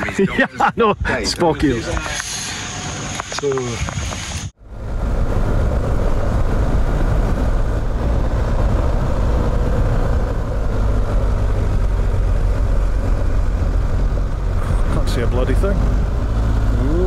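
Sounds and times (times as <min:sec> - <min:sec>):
deep wind rumble: 0:00.9 - 0:17.0
tyres on gravel: 0:01.6 - 0:04.5
motorcycle engine: 0:02.3 - 0:17.0.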